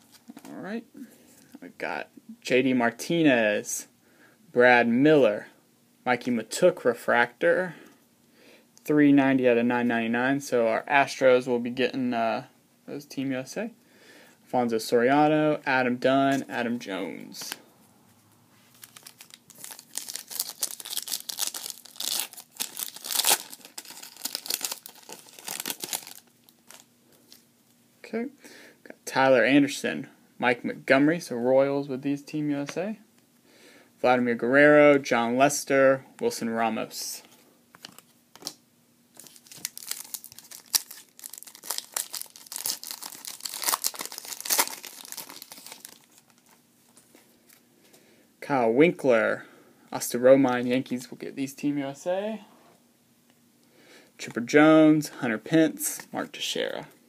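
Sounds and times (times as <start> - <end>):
foil wrapper tearing and crinkling: 18.7 - 26.9, 39.2 - 46.6.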